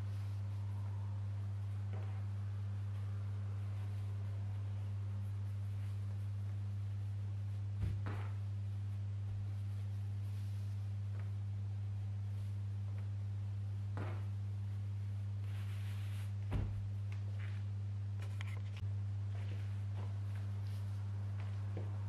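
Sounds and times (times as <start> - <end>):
steady low hum: 0.0 - 22.0
cloth rustling: 2.9 - 11.4, 15.4 - 21.6
soft thumps of towels: 16.4 - 16.8.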